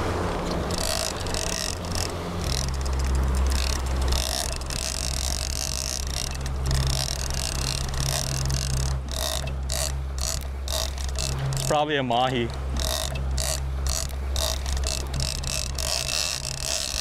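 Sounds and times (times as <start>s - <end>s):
boat engine humming: 0.0s - 17.0s
water rushing: 0.0s - 17.0s.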